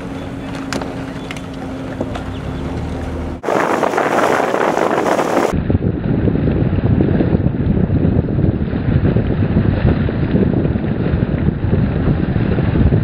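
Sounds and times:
small boat motor humming: 0:00.0 - 0:04.7
wind rushing over microphone: 0:00.0 - 0:13.0.

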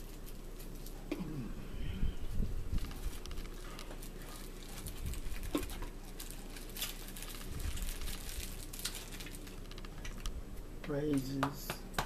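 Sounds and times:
paper napkin crinkling: 0:00.0 - 0:01.1, 0:02.2 - 0:10.2
chewing: 0:02.7 - 0:10.3.

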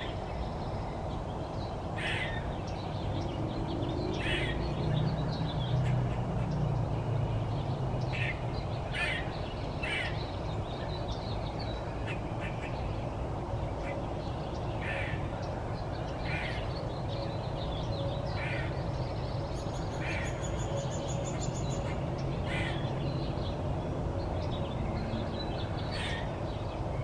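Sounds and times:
squirrel alarm calls: 0:02.0 - 0:02.5, 0:04.1 - 0:04.6, 0:08.1 - 0:10.2, 0:14.8 - 0:15.2, 0:18.4 - 0:18.8, 0:20.0 - 0:22.9, 0:25.8 - 0:26.3.

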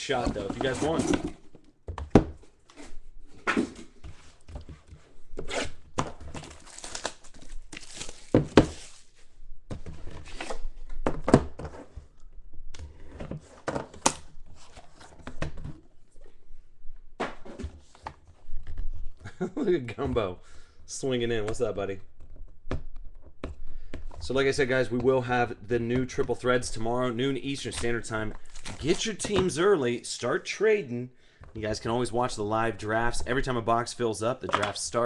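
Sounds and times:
packaging tearing and crumpling: 0:06.4 - 0:09.0.

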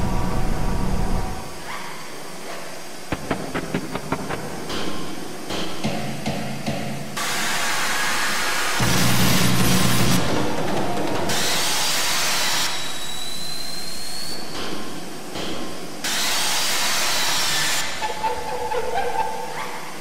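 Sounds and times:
loud electronic hissing noise: 0:00.0 - 0:18.7.

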